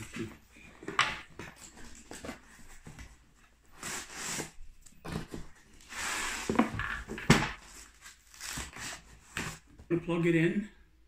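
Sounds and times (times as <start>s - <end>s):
cardboard box sliding and scraping: 3.7s - 6.8s.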